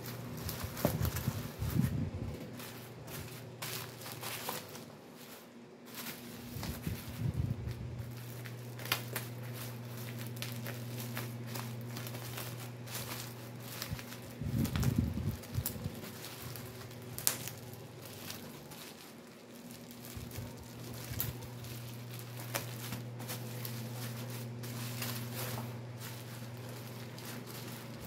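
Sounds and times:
bubble wrap crinkling and crackling: 0.0s - 28.0s
steady low hum: 0.0s - 28.0s
scissors cutting plastic: 8.2s - 28.0s.

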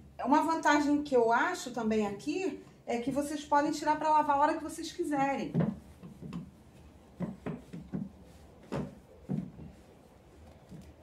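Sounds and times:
soft knocks and rubs on fabric: 5.2s - 11.0s.

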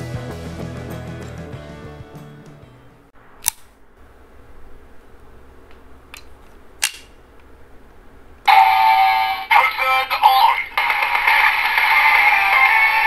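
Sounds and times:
electronic toy tones: 8.5s - 9.5s.

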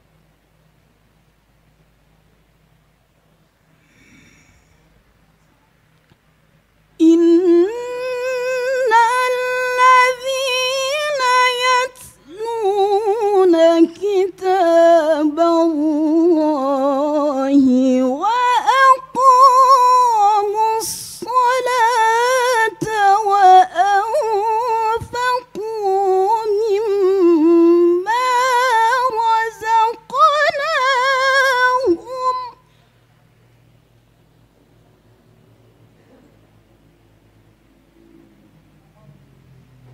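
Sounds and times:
woman reciting melodically: 7.0s - 32.7s.

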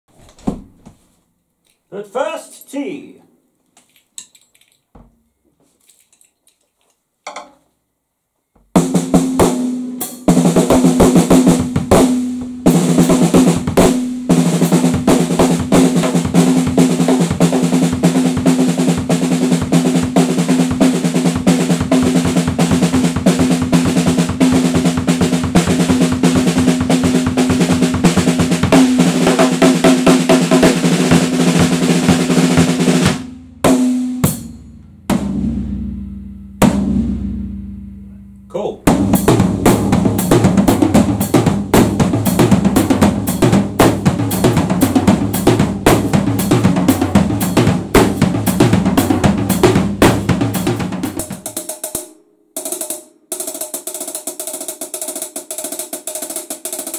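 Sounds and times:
drum kit played fast: 8.8s - 37.6s, 38.5s - 56.9s.

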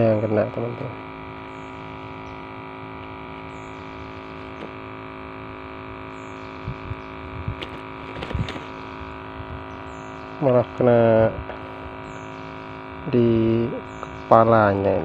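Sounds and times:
steady hum: 0.0s - 15.0s
faint clicks and rustles: 7.5s - 9.1s.

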